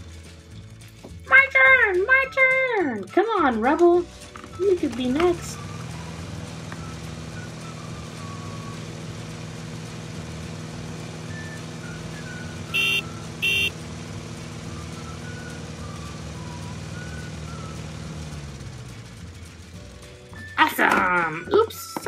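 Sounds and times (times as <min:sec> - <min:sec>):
vehicle engine running: 0:00.0 - 0:22.0
high horn beeps: 0:12.7 - 0:13.8.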